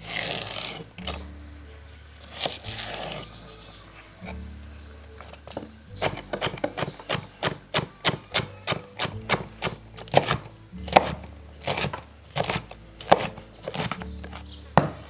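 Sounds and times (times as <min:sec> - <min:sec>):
knife chopping on wooden board: 0:05.2 - 0:15.0.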